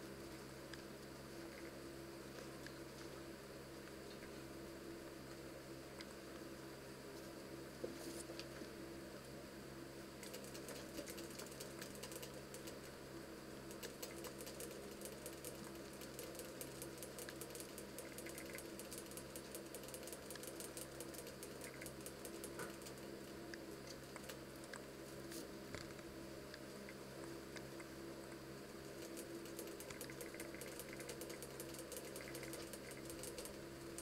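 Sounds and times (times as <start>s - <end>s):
steady low hum: 0.0s - 34.0s
rabbits crunching dry pellets: 10.2s - 12.9s, 13.6s - 27.9s, 28.8s - 34.0s.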